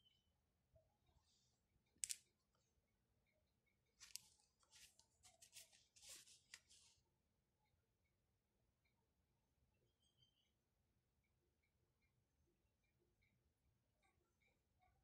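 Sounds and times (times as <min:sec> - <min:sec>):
drawing paper rustling: 0:04.0 - 0:07.0.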